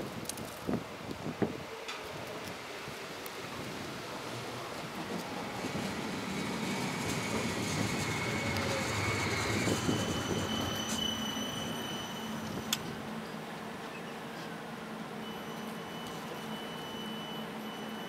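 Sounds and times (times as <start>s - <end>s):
tram wheels rumbling on rail: 0.0s - 18.0s
high-pitched tram whine: 4.2s - 14.5s, 15.2s - 18.0s.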